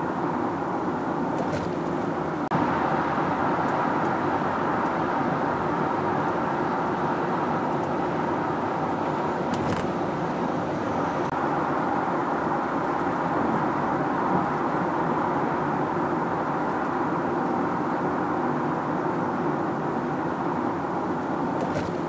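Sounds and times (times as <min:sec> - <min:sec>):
car road and tyre noise: 0:00.0 - 0:22.0.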